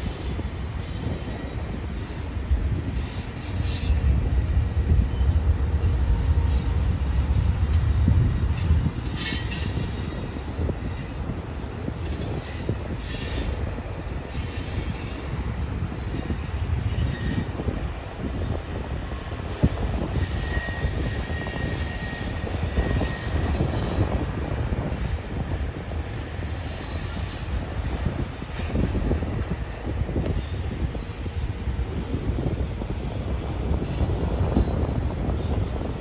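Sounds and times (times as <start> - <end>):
train wheels rumbling on rail: 0.0 - 36.0
high wheel squeals: 5.1 - 11.3, 16.1 - 17.7, 19.9 - 24.1, 33.8 - 36.0.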